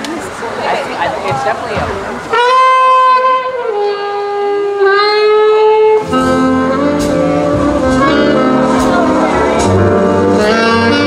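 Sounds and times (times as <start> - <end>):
big band playing: 0.7 - 11.0
alto saxophone playing slowly: 2.3 - 11.0.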